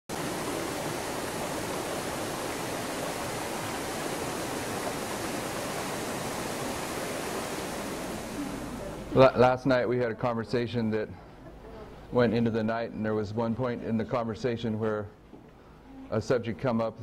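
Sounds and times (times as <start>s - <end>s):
water rushing over rocks: 0.1s - 9.1s.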